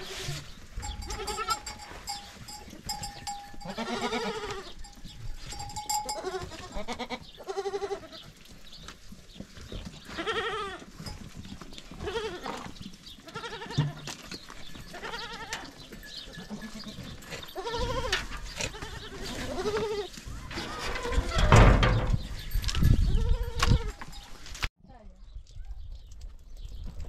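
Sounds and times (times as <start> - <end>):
goat kids bleating: 0.0 - 8.4, 10.0 - 11.2, 11.9 - 14.2, 14.8 - 21.4, 23.0 - 24.0.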